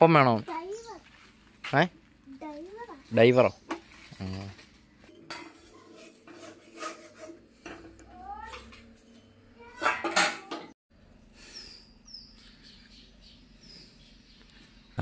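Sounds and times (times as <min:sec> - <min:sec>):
bird chirps: 0:00.5 - 0:01.0, 0:11.4 - 0:15.0
metal pots clinking: 0:05.1 - 0:10.8.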